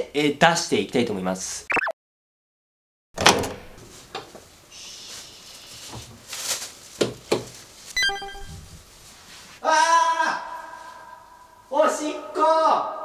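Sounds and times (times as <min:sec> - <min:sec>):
short pitched sound: 0:08.0 - 0:08.7.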